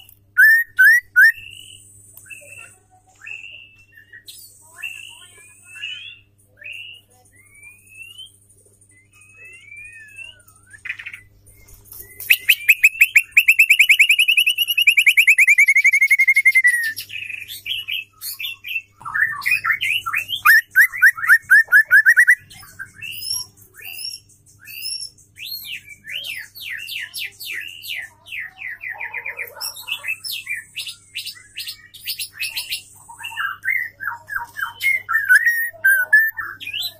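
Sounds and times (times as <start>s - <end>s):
rapid bird trill: 0.0s - 1.8s, 12.2s - 36.9s
bird chirping and singing: 0.0s - 36.9s.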